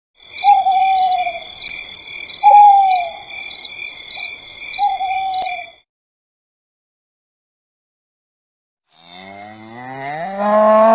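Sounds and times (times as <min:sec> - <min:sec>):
insects chirring: 0:00.2 - 0:05.8
owl hooting: 0:00.4 - 0:01.5, 0:02.4 - 0:03.3, 0:04.8 - 0:05.7.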